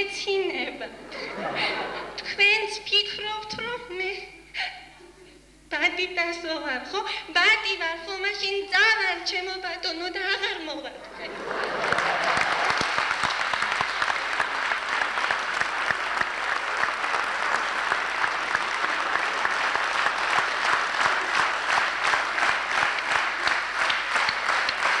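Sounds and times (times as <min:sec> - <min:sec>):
audience applauding: 0:11.3 - 0:25.0
rhythmic clapping in unison: 0:11.4 - 0:25.0.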